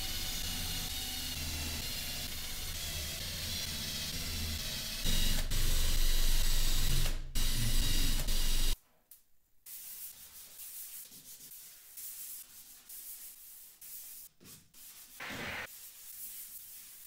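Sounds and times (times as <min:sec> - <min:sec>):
sanding wood by hand: 0:09.7 - 0:17.0.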